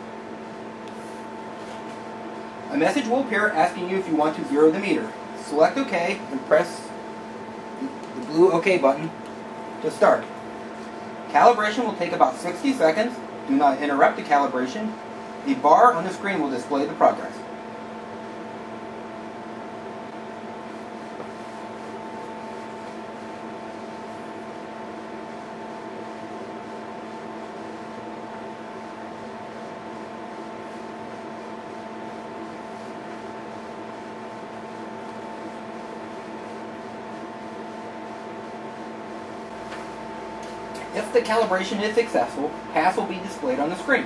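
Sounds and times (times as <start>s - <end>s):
steady tonal hum: 0.0s - 25.7s.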